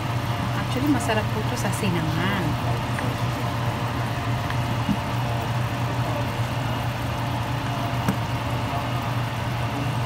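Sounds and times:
meat simmering in fat: 0.0 - 10.0.

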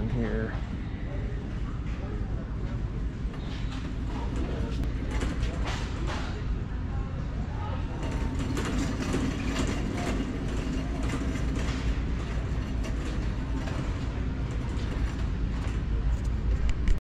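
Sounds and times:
shopping cart rattling: 3.8 - 6.5, 7.9 - 16.6.

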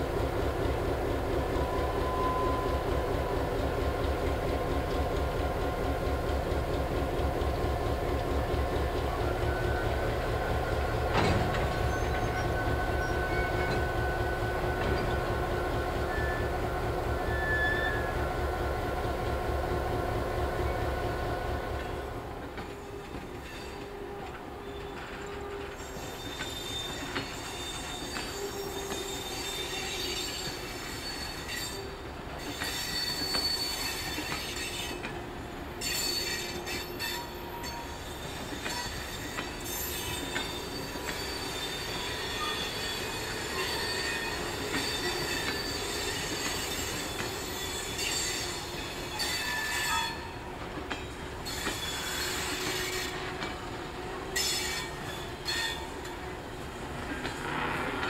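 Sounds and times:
train wheels rumbling on rails: 0.0 - 58.0
high-pitched wheel squeal: 24.9 - 35.0, 35.8 - 50.4.

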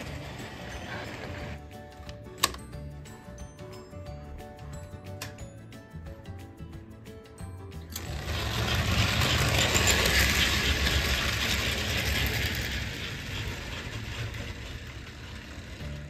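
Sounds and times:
toy train rolling on track: 0.0 - 1.6, 7.9 - 16.0.

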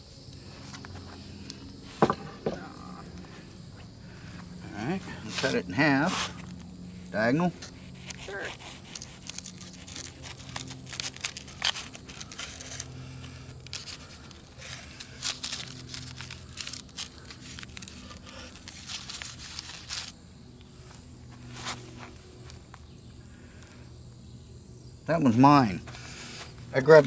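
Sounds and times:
knife sawing through toasted sandwich: 7.6 - 16.2.

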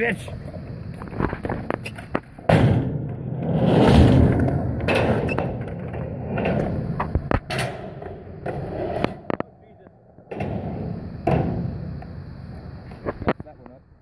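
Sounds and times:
skateboard wheels rolling on concrete: 0.0 - 14.0.

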